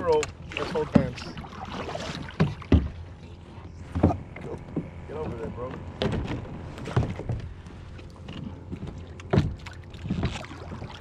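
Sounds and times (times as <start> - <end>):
kayak paddle splashes: 0.0 - 3.2, 6.0 - 11.0.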